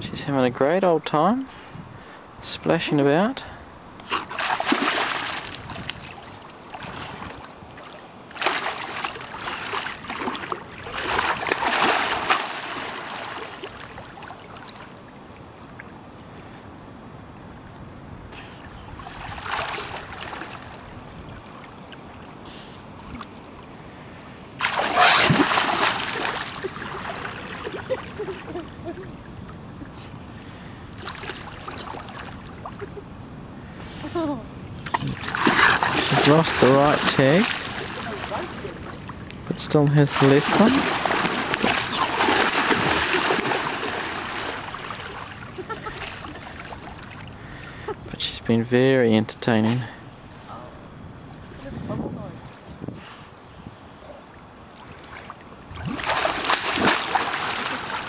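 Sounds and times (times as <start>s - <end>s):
sea lion splashing in water: 4.1s - 14.9s, 19.1s - 20.9s, 24.6s - 28.2s, 34.9s - 39.2s, 40.0s - 47.2s, 55.8s - 58.0s.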